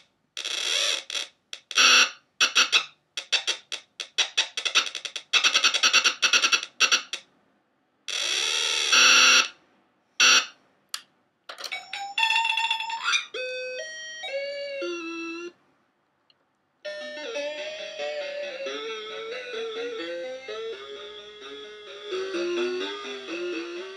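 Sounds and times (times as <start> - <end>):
glitchy electronic toy sounds: 0.4 - 7.2, 16.9 - 23.9.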